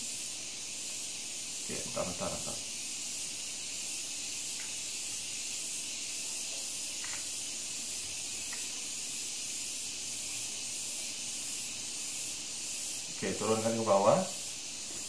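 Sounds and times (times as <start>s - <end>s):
high-pitched microphone hiss: 0.0s - 15.0s.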